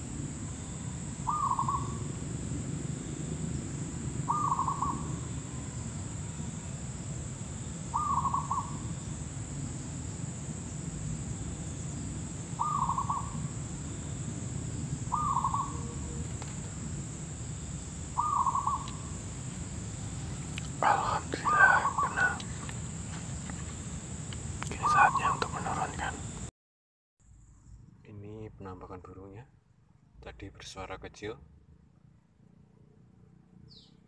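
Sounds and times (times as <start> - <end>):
dove cooing: 1.3 - 2.0, 4.3 - 5.2, 7.9 - 8.8, 12.6 - 13.5, 15.1 - 16.5, 18.2 - 19.1, 20.8 - 22.7, 24.7 - 26.2.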